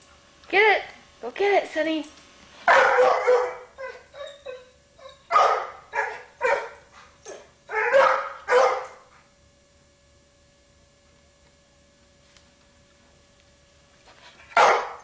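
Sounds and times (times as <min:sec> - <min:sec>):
dog barking: 0:02.7 - 0:04.0, 0:05.3 - 0:09.0, 0:14.6 - 0:15.0.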